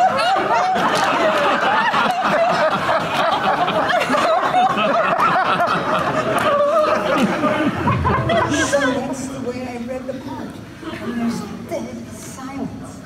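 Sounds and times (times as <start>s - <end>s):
audience laughing: 0.0s - 9.4s.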